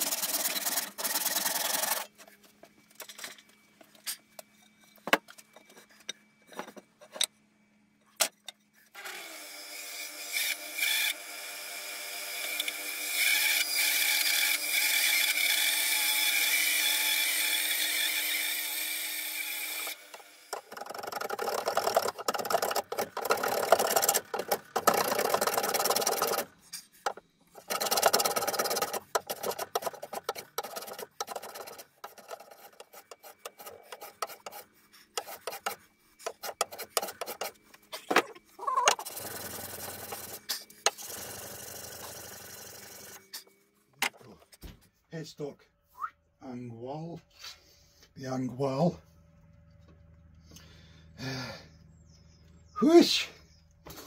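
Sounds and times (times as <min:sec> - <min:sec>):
bandsaw motor running: 0:00.0 - 0:02.2, 0:09.0 - 0:43.4
hand plane shaving wood: 0:00.0 - 0:02.2, 0:20.5 - 0:37.6, 0:38.6 - 0:41.0.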